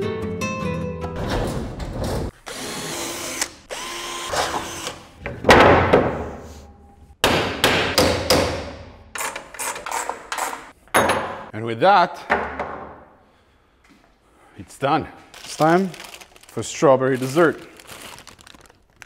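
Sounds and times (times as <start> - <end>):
power drill running: 2.4 - 5.2.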